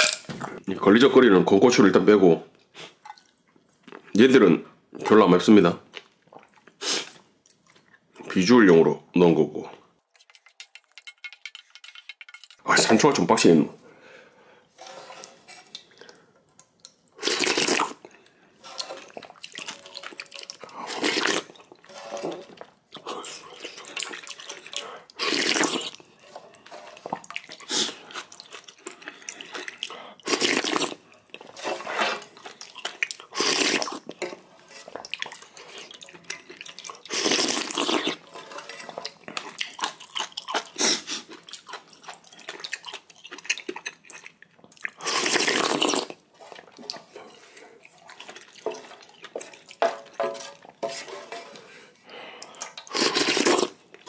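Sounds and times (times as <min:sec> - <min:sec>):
person slurping noodles: 0:17.2 - 0:18.0, 0:18.7 - 0:22.4, 0:23.0 - 0:26.0, 0:26.7 - 0:31.0, 0:33.3 - 0:34.1, 0:37.0 - 0:39.1, 0:44.9 - 0:46.2, 0:51.6 - 0:53.8
chewing and mouth sounds: 0:18.8 - 0:21.9, 0:22.6 - 0:31.6, 0:32.3 - 0:49.9.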